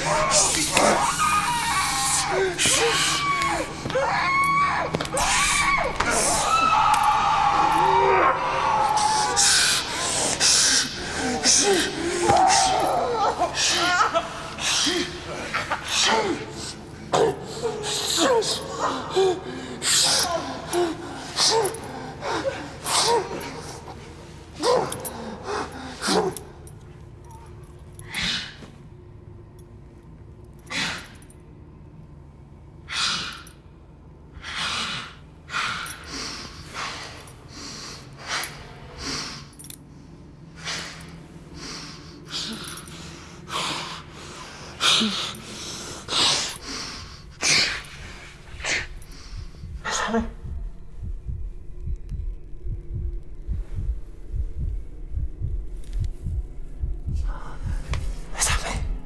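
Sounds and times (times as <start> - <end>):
low rapid pulsing: 46.6 - 59.0.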